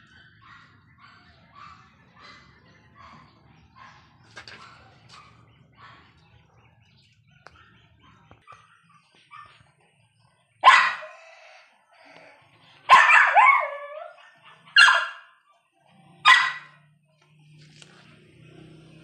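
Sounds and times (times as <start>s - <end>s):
dog barking: 0.0s - 6.6s, 7.2s - 9.8s, 10.6s - 11.4s, 12.8s - 15.6s, 16.2s - 17.0s.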